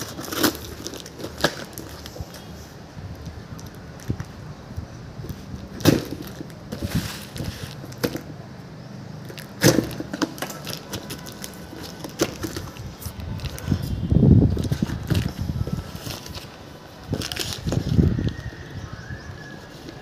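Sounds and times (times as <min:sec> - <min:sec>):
cardboard tearing: 0:00.0 - 0:02.4, 0:14.6 - 0:18.5
cardboard knocks and cracks: 0:05.8 - 0:08.4, 0:09.6 - 0:12.8.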